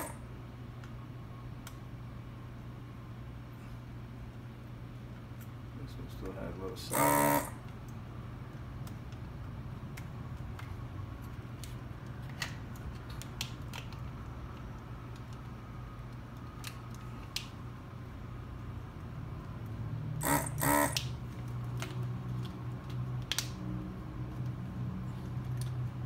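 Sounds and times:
suction bursts: 6.9s - 7.5s, 20.2s - 21.0s.

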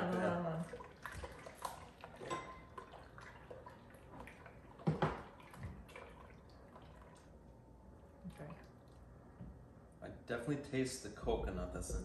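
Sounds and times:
liquid dripping and splashing: 0.0s - 9.2s.

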